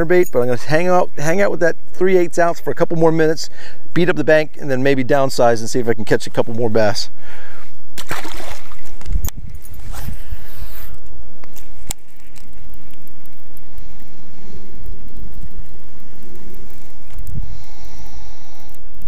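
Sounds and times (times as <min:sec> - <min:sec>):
wind buffeting microphone: 0:07.8 - 0:19.0
fish splashing into water: 0:08.0 - 0:09.0.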